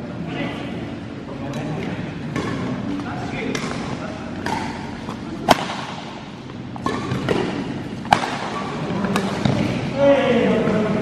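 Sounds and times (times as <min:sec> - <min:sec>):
rackets striking shuttlecock: 0:01.5 - 0:09.8.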